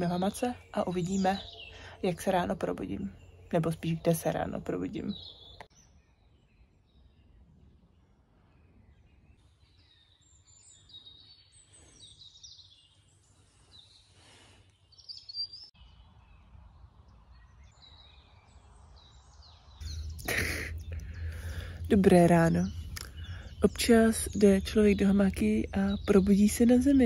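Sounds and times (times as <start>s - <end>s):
songbirds chirping faintly: 0.0s - 27.0s.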